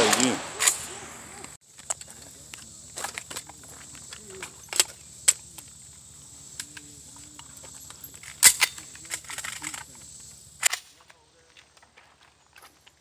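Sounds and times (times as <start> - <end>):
gun mechanism clicks and clacks: 8.2 - 9.9.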